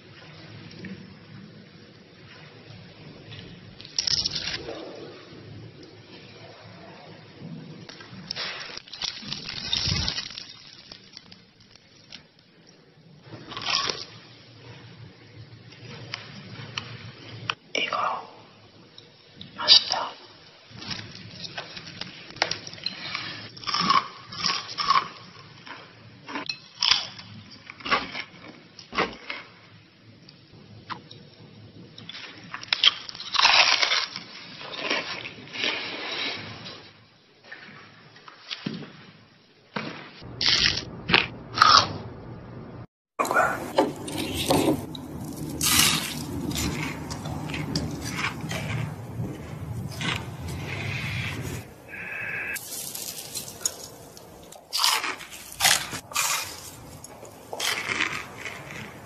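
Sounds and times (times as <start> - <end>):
crunching fried chicken: 3.3 - 5.1, 7.9 - 12.3, 20.7 - 29.6, 32.0 - 36.6, 40.2 - 41.9, 43.2 - 59.0.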